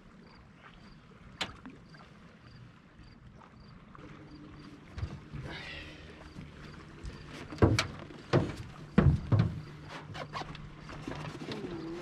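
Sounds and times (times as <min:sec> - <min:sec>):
knocks on boat hull: 0:07.5 - 0:09.8.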